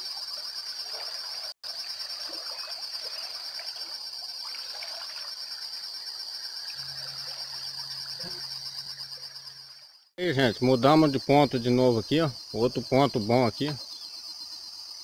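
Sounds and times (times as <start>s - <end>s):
insects shrilling chorus: 1.7s - 15.0s
faint bird chirps: 13.8s - 15.0s.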